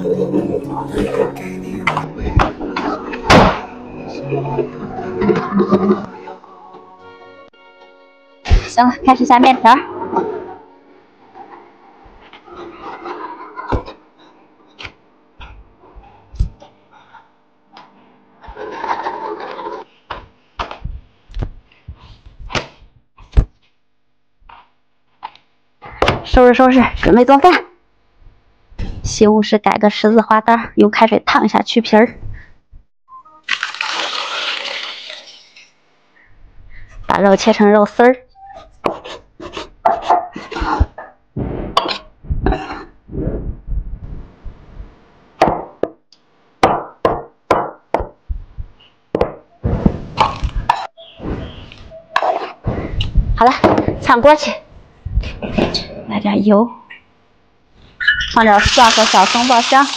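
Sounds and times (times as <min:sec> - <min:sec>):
knife chopping on wooden board: 0:38.8 - 0:39.2.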